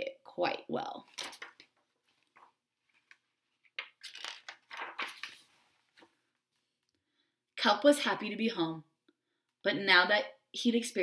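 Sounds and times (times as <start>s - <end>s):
book pages rustling: 1.1s - 6.8s.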